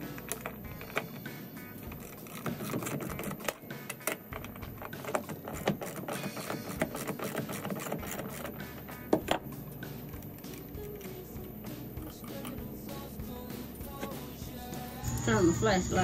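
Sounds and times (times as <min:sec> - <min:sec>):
ratchet wrench clicking: 0:01.9 - 0:08.6.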